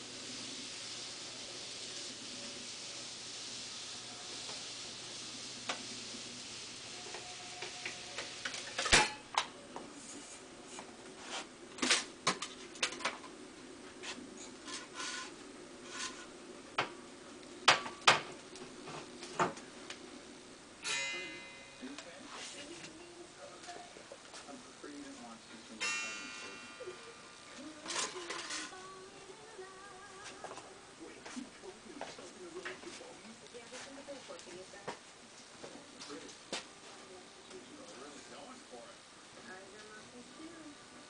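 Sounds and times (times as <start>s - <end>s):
faint hiss: 0.0s - 9.0s, 13.9s - 35.0s
squeaky scrape: 14.4s - 16.3s.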